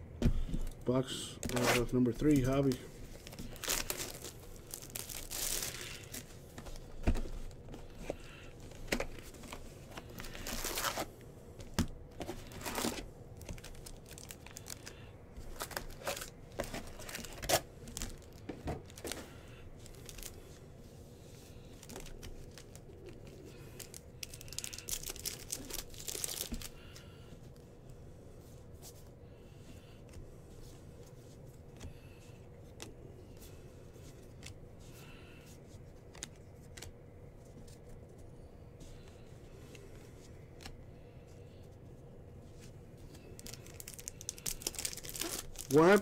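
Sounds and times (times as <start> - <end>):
card wrappers tearing and crinkling: 1.3 - 6.8, 7.4 - 11.1, 11.8 - 20.5, 21.5 - 27.0, 43.2 - 46.0.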